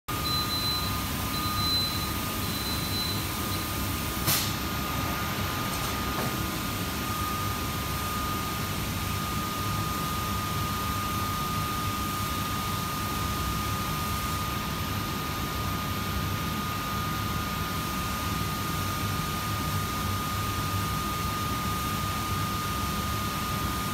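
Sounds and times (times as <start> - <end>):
short high beeps: 0.1 - 3.7
machinery drone and hiss: 0.9 - 10.4.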